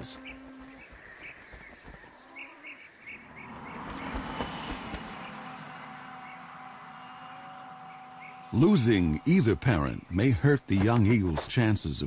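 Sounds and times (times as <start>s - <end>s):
songbird chirps: 0.0s - 12.0s
rush of noise: 3.3s - 9.3s.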